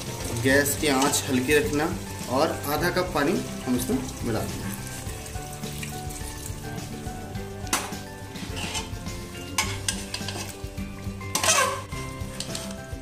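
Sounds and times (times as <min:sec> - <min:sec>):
gravy sizzling: 0:00.0 - 0:13.0
metal spatula scraping pot: 0:00.6 - 0:01.4, 0:07.7 - 0:12.7.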